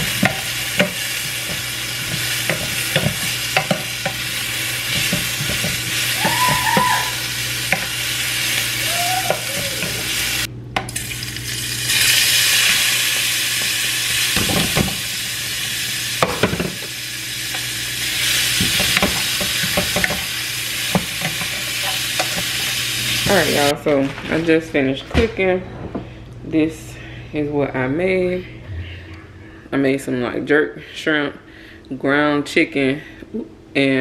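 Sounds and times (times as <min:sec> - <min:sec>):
food sizzling in a pan: 0:00.0 - 0:23.7
utensil scraping against pan: 0:20.9 - 0:23.4.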